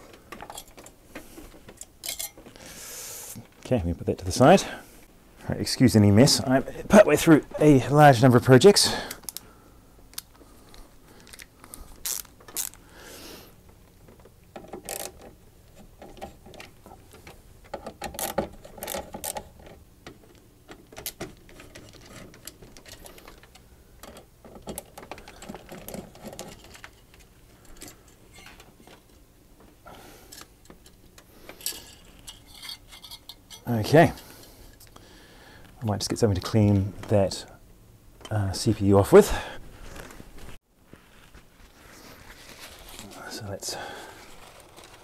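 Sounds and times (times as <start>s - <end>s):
small clicks and metal rattles: 14.0s - 29.2s.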